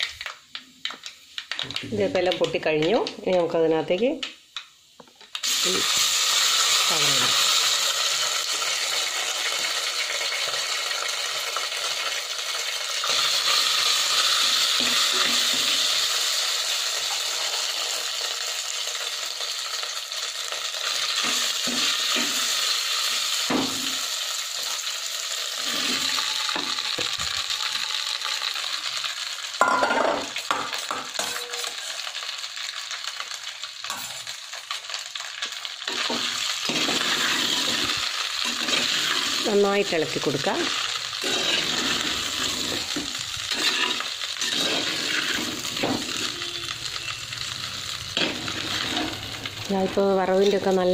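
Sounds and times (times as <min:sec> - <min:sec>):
hot oil sizzling: 0:00.0 - 0:50.9.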